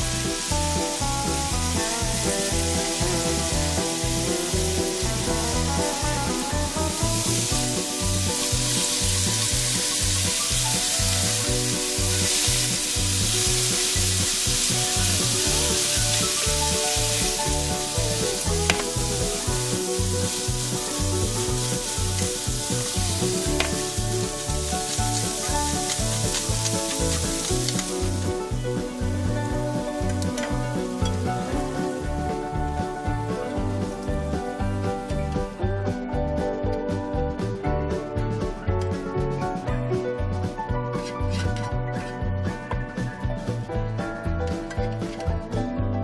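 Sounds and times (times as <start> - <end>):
meat sizzling in a frying pan: 0.0 - 35.5.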